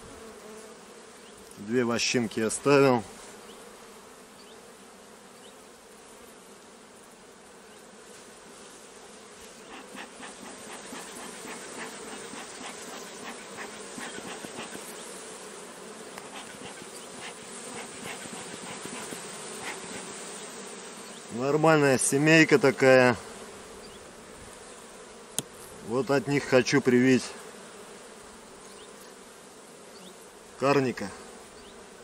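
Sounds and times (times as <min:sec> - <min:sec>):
honeybees buzzing: 0:00.0 - 0:32.0
bee smoker bellows puffs: 0:08.1 - 0:28.9.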